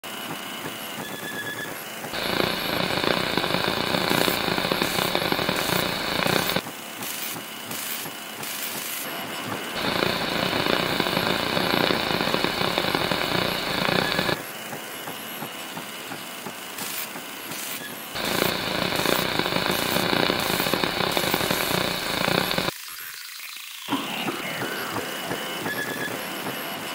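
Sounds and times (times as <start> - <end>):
harsh static-like noise: 2.1 - 6.6, 9.8 - 14.4, 16.9 - 22.8.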